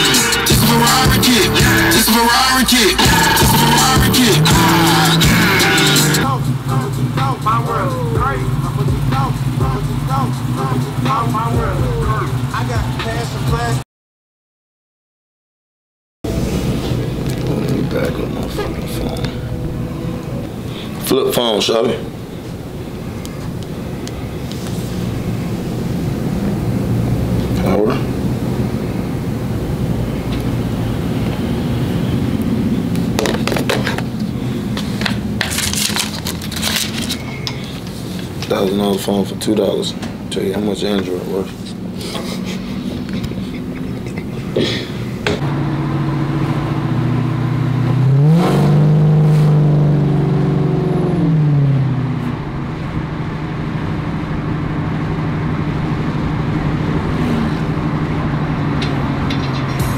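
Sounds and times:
road noise: 0.0 - 13.8, 16.2 - 59.9
steady low hum: 0.5 - 13.8, 16.3 - 48.2.

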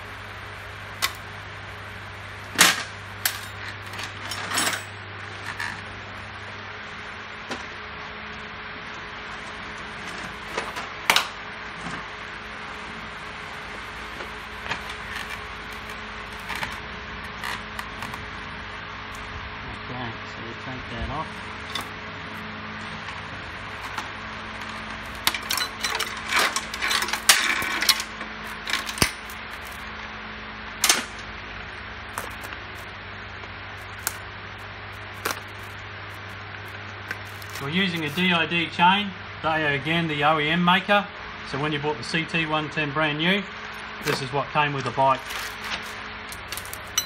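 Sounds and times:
steady low hum: 0.0 - 47.0
drive chain clinking and rattling: 25.2 - 29.3.

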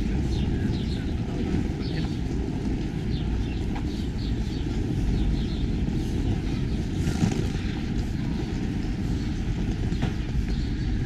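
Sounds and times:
steady low street rumble: 0.0 - 11.0.

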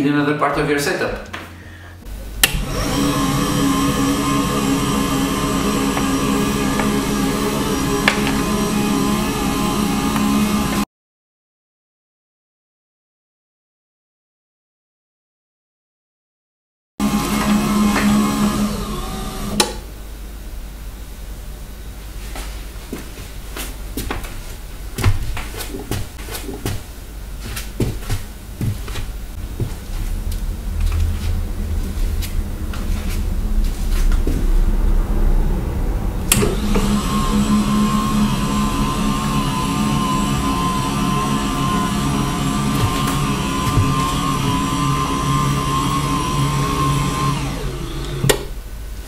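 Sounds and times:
footsteps on floor: 0.6 - 1.6, 22.1 - 34.7, 42.7 - 45.0
standing desk motor hum: 0.6 - 10.8, 17.0 - 49.0.

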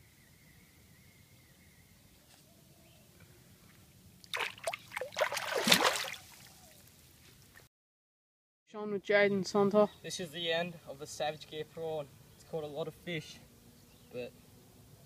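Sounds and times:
fish splashing in water: 4.2 - 6.7.

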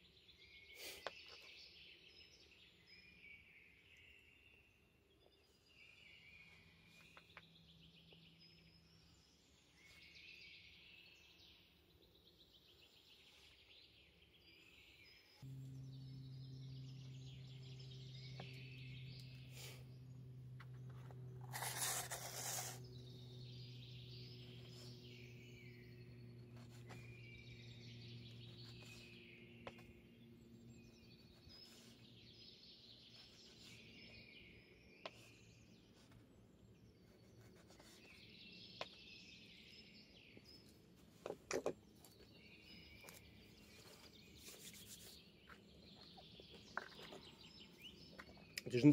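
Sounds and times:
small birds chirping: 0.0 - 48.9
faint low hum: 2.0 - 48.9
rustle: 21.4 - 22.8.

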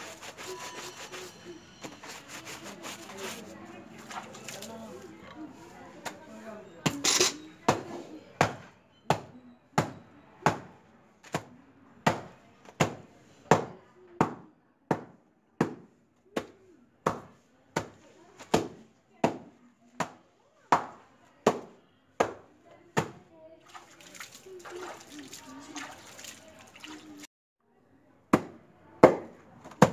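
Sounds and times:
paddle beating wet laundry on stone: 1.8 - 5.0, 12.1 - 27.3.

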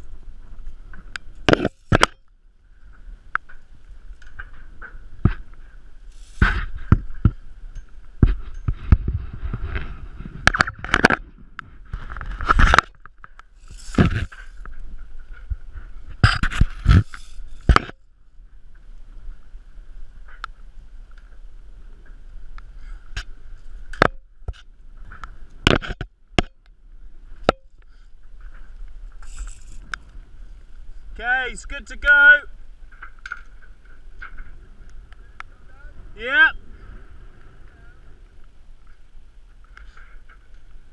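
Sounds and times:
rubbing over camera: 13.6 - 14.6, 16.2 - 18.0.

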